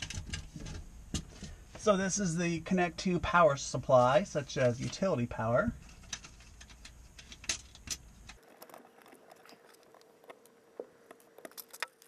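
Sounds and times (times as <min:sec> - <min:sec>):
wires clicking and tapping: 0:00.0 - 0:01.9, 0:04.5 - 0:12.0
low background hum: 0:00.0 - 0:12.0.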